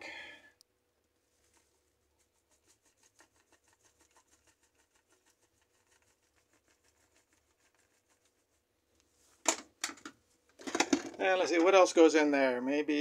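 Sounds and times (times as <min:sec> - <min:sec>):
salt shaker ticking: 0:02.4 - 0:08.3.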